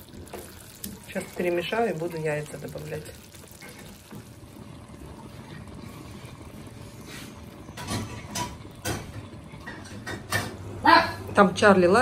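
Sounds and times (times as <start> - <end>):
spoon knocking against pan: 7.7 - 10.6.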